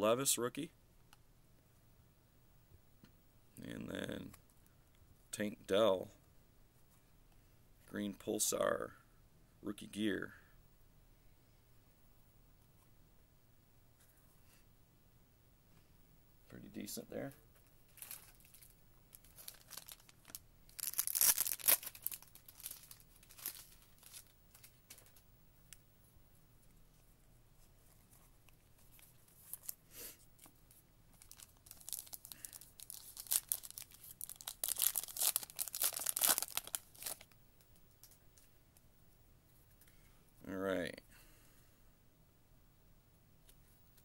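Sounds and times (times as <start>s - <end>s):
wrapper tearing and crinkling: 17.9s - 25.1s, 31.2s - 37.4s.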